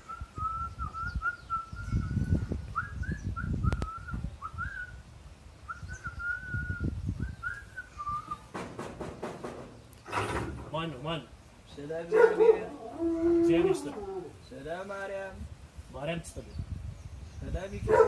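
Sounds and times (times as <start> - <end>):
high wavering whistle: 0.0 - 5.0, 5.7 - 8.5
low irregular thumps and rumbles: 8.2 - 11.0.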